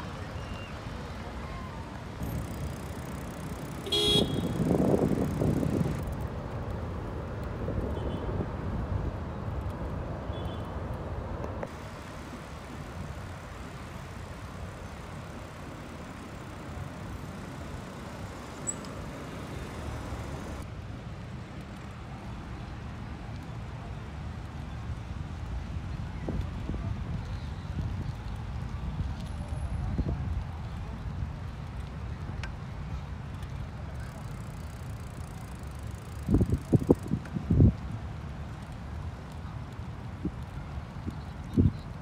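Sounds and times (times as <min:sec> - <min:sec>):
hum of road traffic: 0:00.0 - 0:42.0
car horn: 0:03.8 - 0:04.7.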